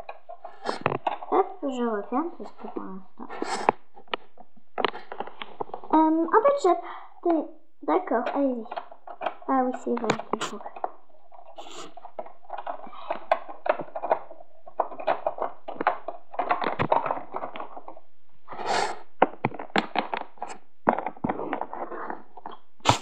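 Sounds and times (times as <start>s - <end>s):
plastic toys clicking on wooden floor: 0.0s - 6.0s, 8.0s - 23.0s.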